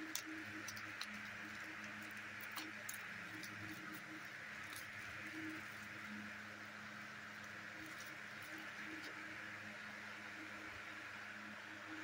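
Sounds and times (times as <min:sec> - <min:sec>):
plastic wrap crackling: 0:00.0 - 0:06.2, 0:07.4 - 0:09.2
low hum and hiss: 0:00.0 - 0:12.0.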